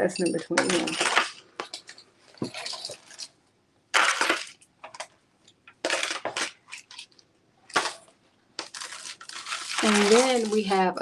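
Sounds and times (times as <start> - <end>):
jewelry beads clinking: 0.2 - 3.4, 8.6 - 10.7.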